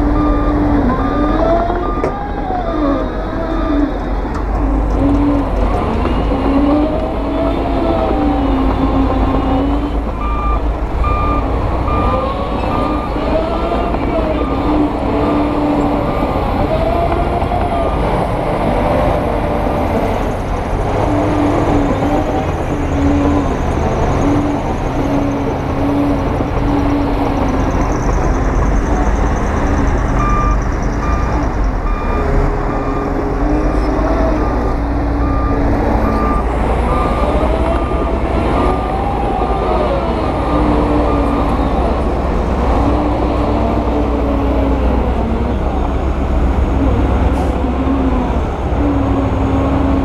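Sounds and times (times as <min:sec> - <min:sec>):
reversing alarm beeping: 0:00.0 - 0:04.0, 0:09.8 - 0:18.1, 0:27.8 - 0:39.6, 0:40.2 - 0:41.8
heavy machinery diesel engines: 0:00.0 - 0:50.0.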